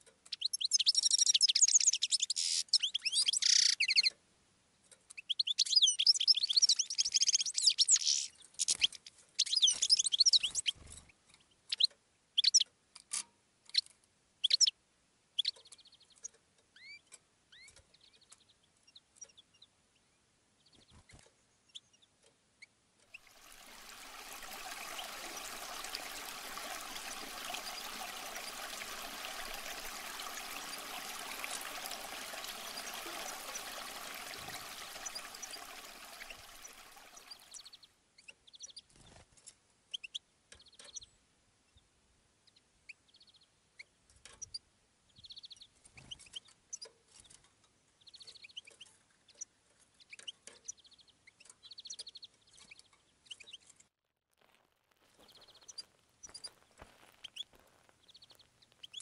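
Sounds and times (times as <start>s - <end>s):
short bird-like chirps: 0.3s - 4.2s
water rushing over rocks: 23.2s - 37.7s.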